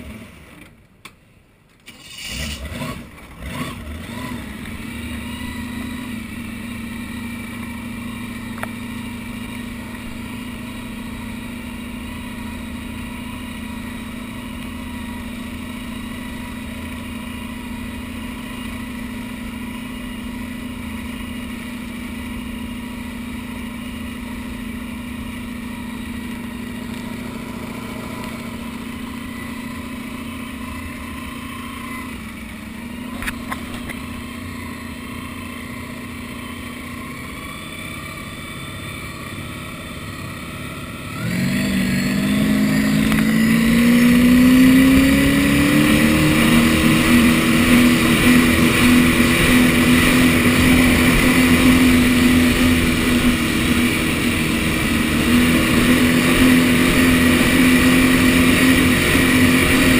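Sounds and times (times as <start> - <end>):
boat engine running: 24.4 - 59.9.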